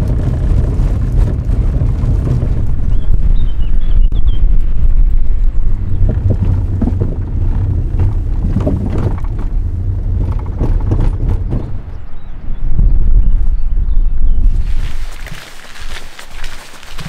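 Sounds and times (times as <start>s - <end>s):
car rumbling over gravel: 0.0s - 12.4s, 14.4s - 17.0s
stones knocking and crunching: 6.0s - 11.8s, 14.5s - 17.0s.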